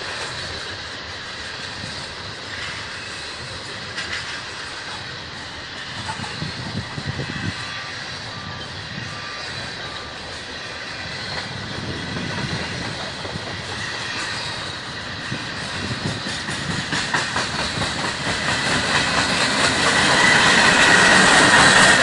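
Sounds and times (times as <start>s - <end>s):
train wheels clicking over rail joints: 0.0s - 22.0s.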